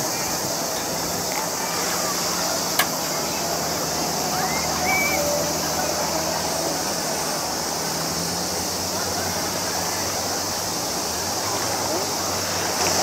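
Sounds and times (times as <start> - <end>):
faint distant voices: 0.0 - 13.0
high outdoor hiss: 0.0 - 13.0.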